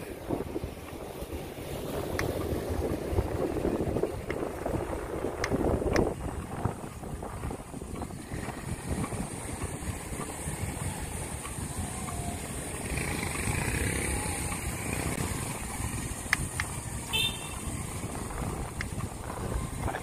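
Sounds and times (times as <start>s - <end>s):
street traffic rumble: 0.0s - 20.0s
wind on microphone: 0.0s - 20.0s.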